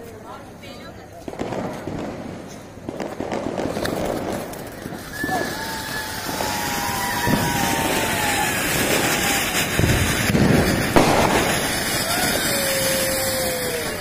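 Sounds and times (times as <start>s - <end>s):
fountain fireworks hissing: 1.2s - 14.0s
falling whistles: 5.0s - 9.6s
sharp crack: 6.9s - 13.2s.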